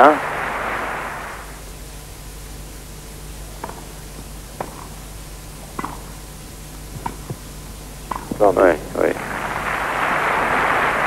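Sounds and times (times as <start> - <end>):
videotape hiss and hum: 0.0 - 11.0
tennis ball bounced and struck: 3.6 - 3.9, 4.6 - 5.0, 5.8 - 6.1, 6.9 - 7.4, 8.1 - 8.4.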